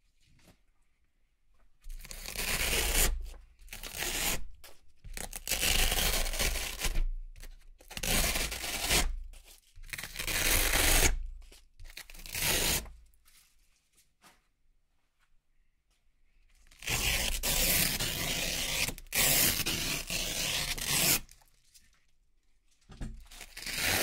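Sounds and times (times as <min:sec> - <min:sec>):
velcro ripping apart: 0:05.4 - 0:07.0, 0:16.8 - 0:21.5, 0:23.3 - 0:24.0.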